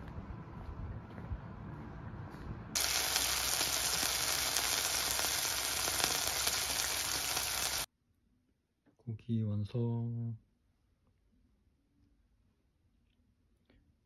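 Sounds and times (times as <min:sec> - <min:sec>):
low rumble: 0:00.0 - 0:02.7
pork chop sizzling in oil: 0:02.8 - 0:07.9.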